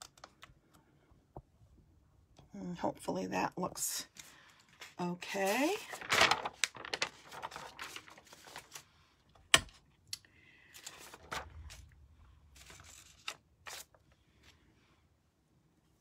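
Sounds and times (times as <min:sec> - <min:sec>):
paper rustling: 0:04.2 - 0:08.9, 0:10.7 - 0:14.6.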